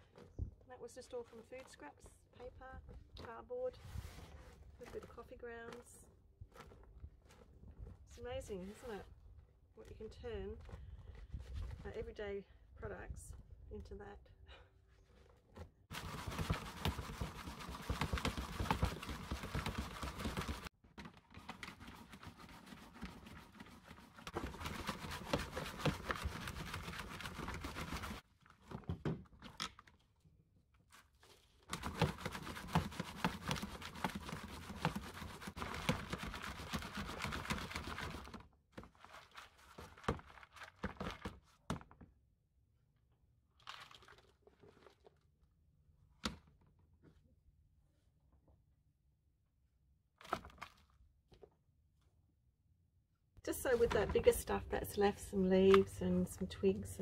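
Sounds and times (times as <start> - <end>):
compost rustling through sieve: 15.9 - 20.7, 21.4 - 28.2, 30.9 - 41.0.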